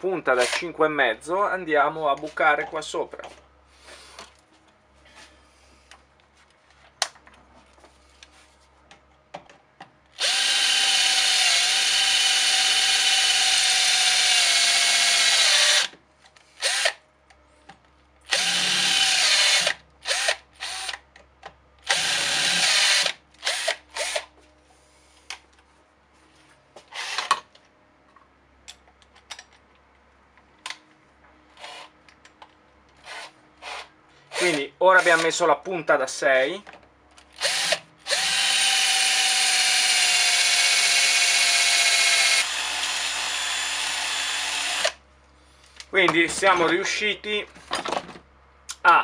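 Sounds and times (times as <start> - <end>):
cordless drill boring into brass: 0.4 - 0.6, 10.2 - 15.9, 16.6 - 17.0, 18.3 - 21.0, 21.8 - 24.3, 33.1 - 35.3, 37.4 - 45.0.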